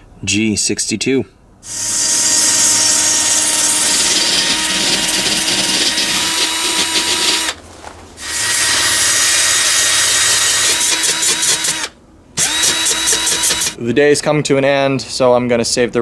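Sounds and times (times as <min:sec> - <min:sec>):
drill wire brush scouring metal: 0:01.7 - 0:07.6, 0:08.2 - 0:13.8.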